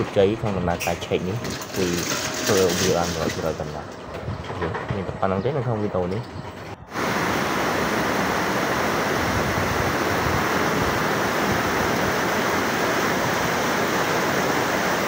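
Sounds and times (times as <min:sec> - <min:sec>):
rush of running water: 0:06.9 - 0:15.0.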